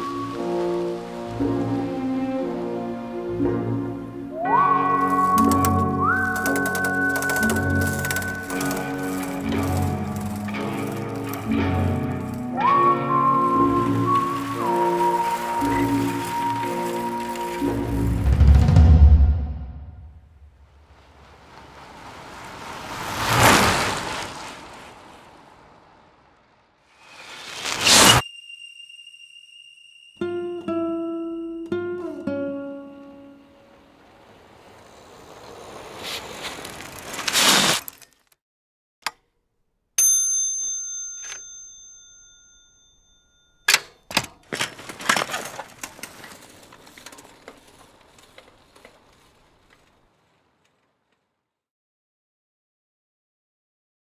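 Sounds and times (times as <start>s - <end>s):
bicycle passing by: 0.0s - 19.1s, 20.4s - 28.2s, 30.2s - 38.3s, 40.6s - 51.5s
bicycle crashing to the ground: 5.2s - 12.6s, 36.0s - 38.3s, 43.7s - 50.6s.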